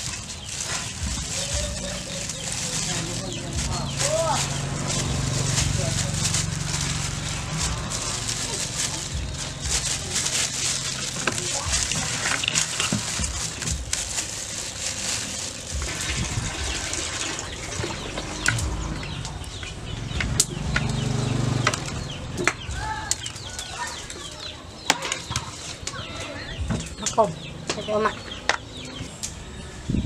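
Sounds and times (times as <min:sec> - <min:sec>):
plastic glove rustling: 0:00.0 - 0:19.2.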